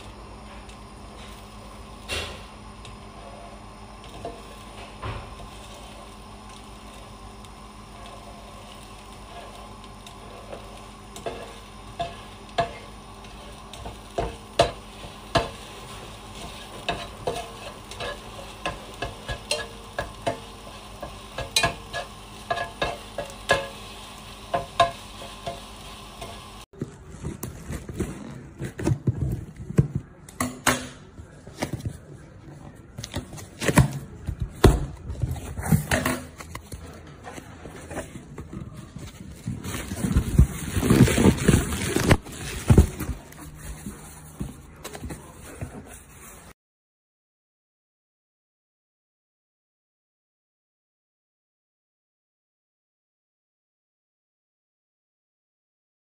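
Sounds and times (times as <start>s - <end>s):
eggs sizzling in a frying pan: 0.0s - 26.7s
spatula scraping a pan: 10.3s - 26.5s
spatula tapping a pan: 13.8s - 15.7s, 16.4s - 23.8s
cardboard packaging rustling: 26.8s - 30.1s, 33.0s - 46.4s.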